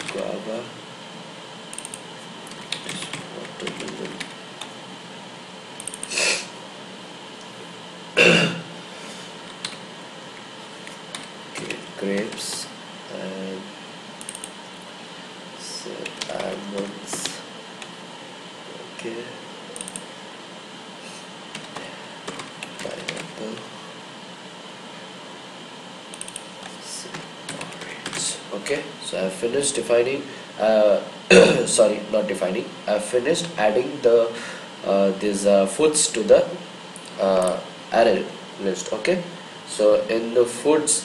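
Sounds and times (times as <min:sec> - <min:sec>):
steady low hiss: 0:00.0 - 0:41.0
faint keyboard clicks: 0:01.7 - 0:04.7, 0:26.2 - 0:28.3
man clearing his throat: 0:08.2 - 0:08.7, 0:31.3 - 0:31.8.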